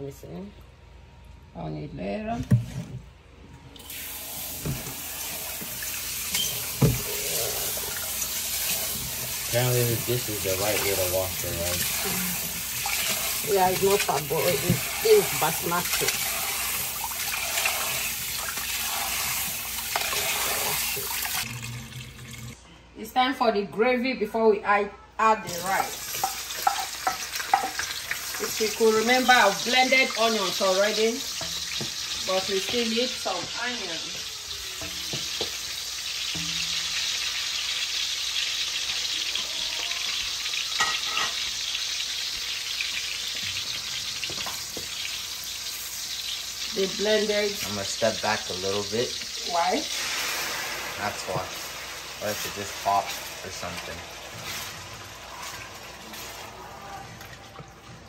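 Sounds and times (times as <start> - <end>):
onions sizzling in oil: 3.8 - 22.3, 25.5 - 57.2
tap water running into metal bowl: 3.9 - 22.6, 25.5 - 37.3, 42.8 - 45.3, 46.2 - 56.5.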